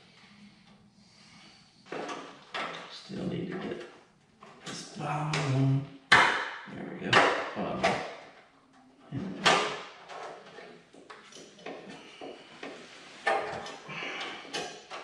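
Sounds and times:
car parts knocking and rattling: 0:01.9 - 0:08.3, 0:09.4 - 0:15.0
sharp knocks: 0:05.2 - 0:08.2.

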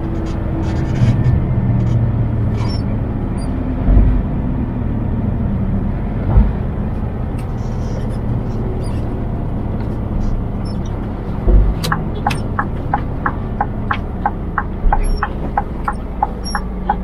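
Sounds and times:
truck diesel engine drone: 0:00.0 - 0:17.0
low thumps: 0:02.8 - 0:04.4, 0:06.2 - 0:17.0.

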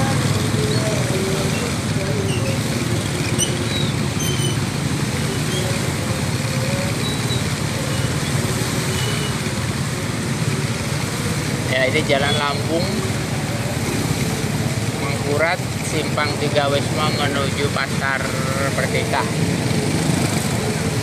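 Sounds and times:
motorcycles riding through floodwater: 0:00.0 - 0:21.0.

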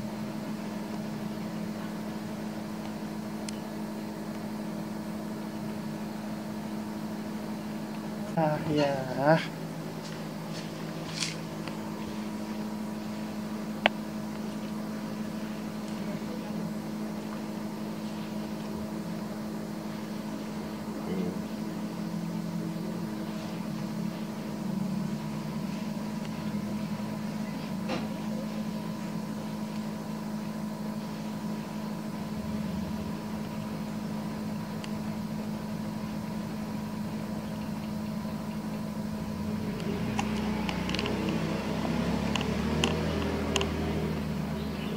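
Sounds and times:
low machine hum: 0:00.0 - 0:44.9.

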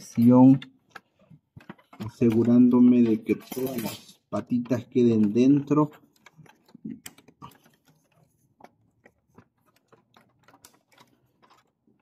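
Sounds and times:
plastic clicks and taps: 0:00.1 - 0:03.3, 0:04.4 - 0:12.0.

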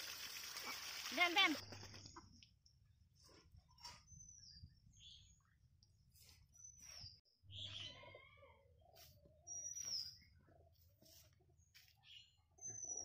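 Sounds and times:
faint bird chirps: 0:03.7 - 0:11.3, 0:11.9 - 0:13.0.

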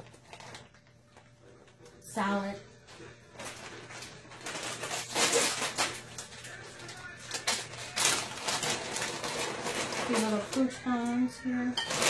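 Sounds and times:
plastic packaging crinkling: 0:00.0 - 0:01.3, 0:03.0 - 0:11.1.

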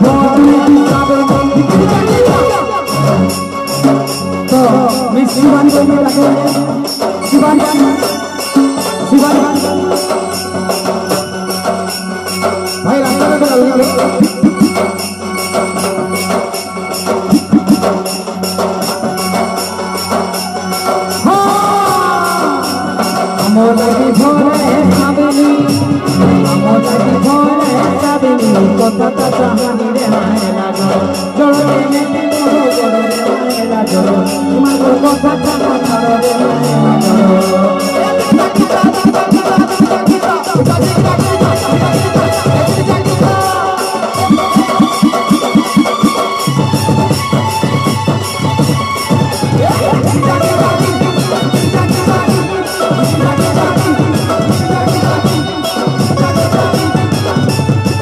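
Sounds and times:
fast drum beat: 0:00.0 - 0:26.5, 0:38.2 - 0:58.0
jingling percussion: 0:00.0 - 0:58.0
melody line: 0:07.3 - 0:18.4, 0:44.1 - 0:46.5.

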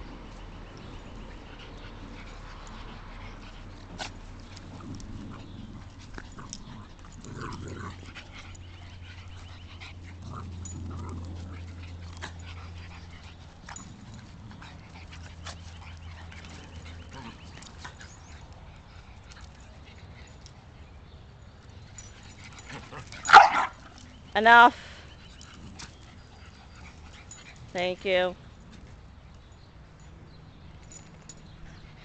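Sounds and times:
dogs whining and yipping: 0:00.0 - 0:27.7, 0:28.4 - 0:32.0
dog growling: 0:04.4 - 0:13.2.

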